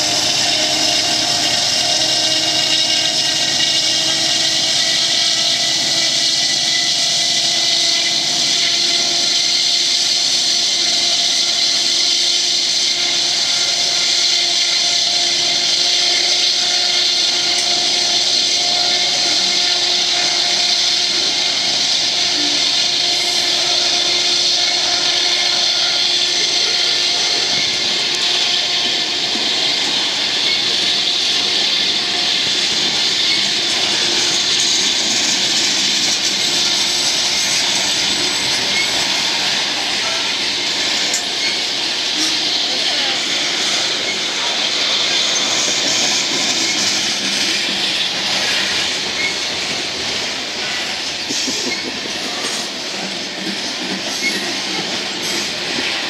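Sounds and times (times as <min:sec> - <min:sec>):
locomotive engines droning: 0:00.0 - 0:56.0.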